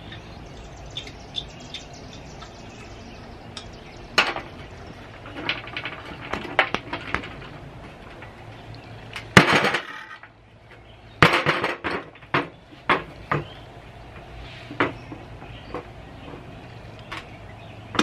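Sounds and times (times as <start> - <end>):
metal clanks and knocks: 4.2 - 10.4, 11.2 - 13.5.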